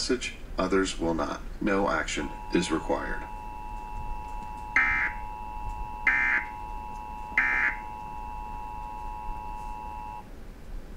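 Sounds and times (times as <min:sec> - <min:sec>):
faint steady tone: 0:01.6 - 0:10.4
harsh digital data bursts: 0:01.7 - 0:10.2.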